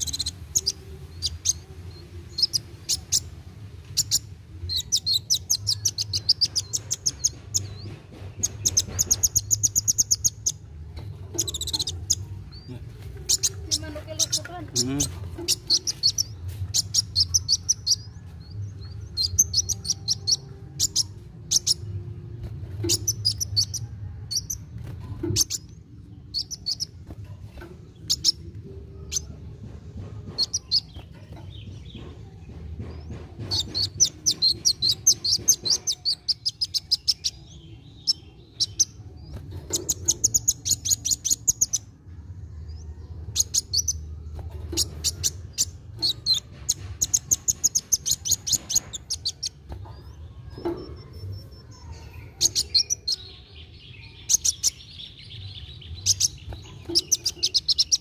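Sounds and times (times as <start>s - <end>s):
bird chittering trills: 0.0s - 22.0s, 22.8s - 29.4s, 30.2s - 32.4s, 33.0s - 41.9s, 43.3s - 58.0s
bird sharp chips: 2.3s - 18.2s, 43.4s - 53.3s, 54.1s - 58.0s.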